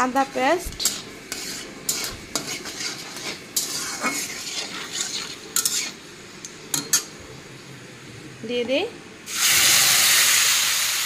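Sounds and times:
spices sizzling in hot oil: 0.0 - 7.7, 9.2 - 11.0
metal spatula scraping a pan: 0.6 - 6.0, 6.7 - 7.1.

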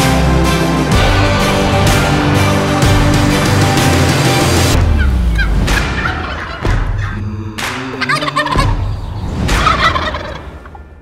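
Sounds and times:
turkey gobbling: 5.3 - 7.2, 8.0 - 10.8.

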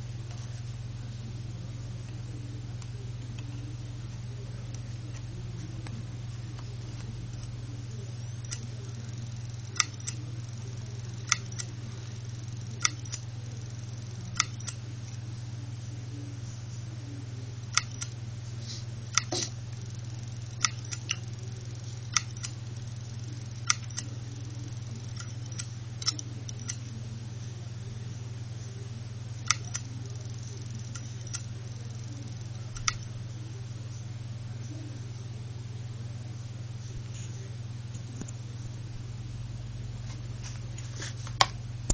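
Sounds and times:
hard drive humming: 0.0 - 41.9
hard drive head clicks: 8.4 - 14.8, 17.7 - 18.2, 19.1 - 26.8, 29.4 - 31.5, 32.1 - 33.1.

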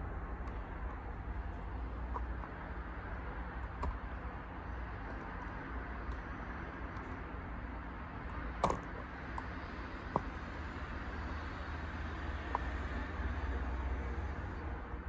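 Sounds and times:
low background rumble and hiss: 0.0 - 15.0.

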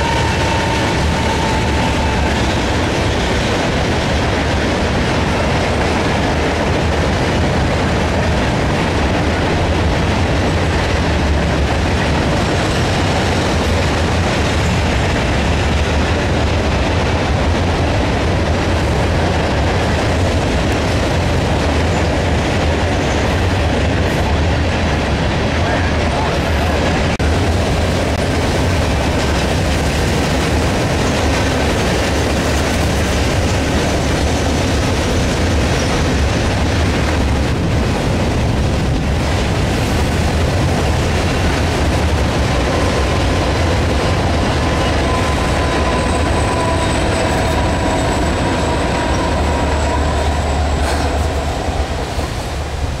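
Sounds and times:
high wheel squeals: 0.0 - 2.8, 44.2 - 52.2
freight train rumble: 0.0 - 53.0.

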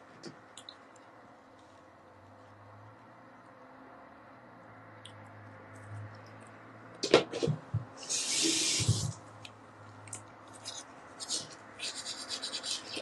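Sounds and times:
rubbing and scratching: 7.1 - 9.2, 10.5 - 13.0
spray can hissing: 8.0 - 9.2.

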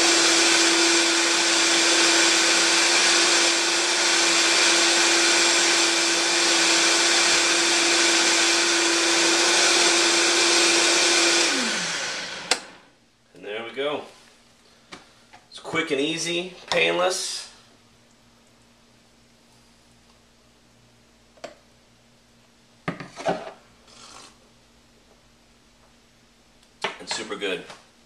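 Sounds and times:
blender running at high speed: 0.0 - 12.8.

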